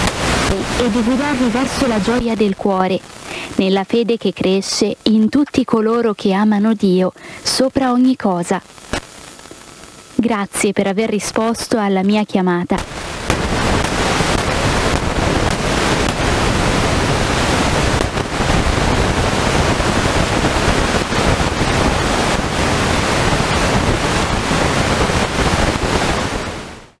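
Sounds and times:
radio static hiss: 0:00.0 - 0:27.0.

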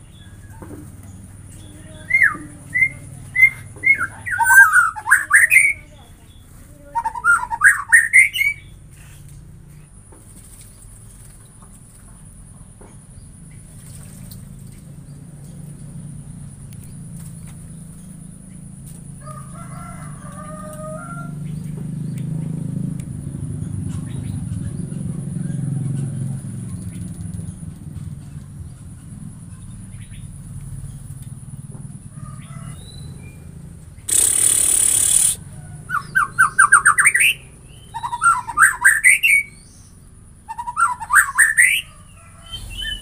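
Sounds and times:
bird singing whistled phrases: 0:02.0 - 0:06.0, 0:06.9 - 0:08.7, 0:34.1 - 0:35.4, 0:36.0 - 0:39.8, 0:40.5 - 0:41.9.

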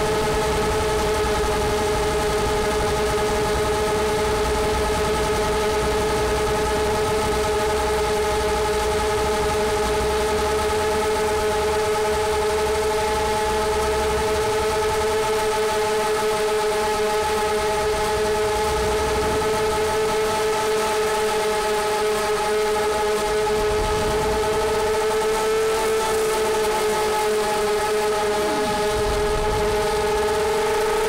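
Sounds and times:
drone motors whining: 0:27.5 - 0:31.0
wind rumble on microphone: 0:28.1 - 0:31.0.

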